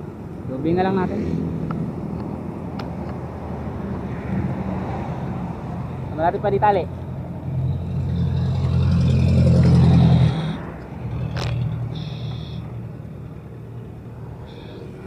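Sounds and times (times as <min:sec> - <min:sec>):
vehicle engine running: 0:07.2 - 0:15.0.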